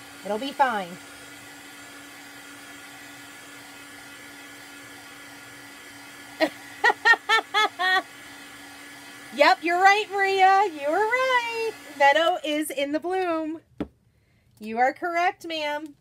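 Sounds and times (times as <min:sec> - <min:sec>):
heat tool blowing: 0:00.0 - 0:13.4
person laughing: 0:06.4 - 0:08.1.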